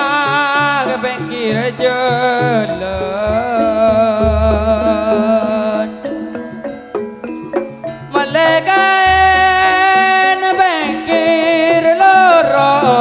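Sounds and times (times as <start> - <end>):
wavering folk melody: 0.0 - 13.0
sparse struck notes: 0.6 - 10.7
deep low boom: 2.7 - 5.1.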